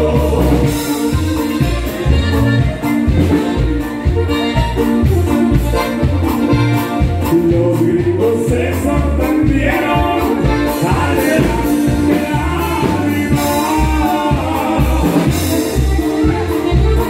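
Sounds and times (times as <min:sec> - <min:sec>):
lead singer singing: 0:00.0 - 0:01.2, 0:07.0 - 0:16.6
live band playing: 0:00.0 - 0:17.0.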